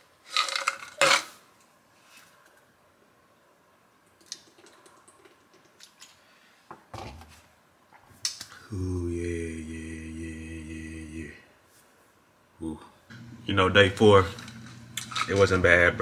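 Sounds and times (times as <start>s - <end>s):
man groaning: 8.7s - 11.4s.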